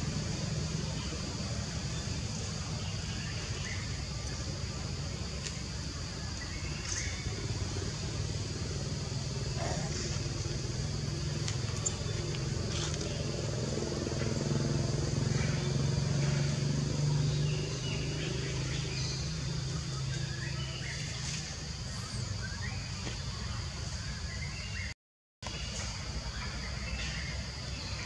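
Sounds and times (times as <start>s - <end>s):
motor engine humming: 0.0s - 21.1s.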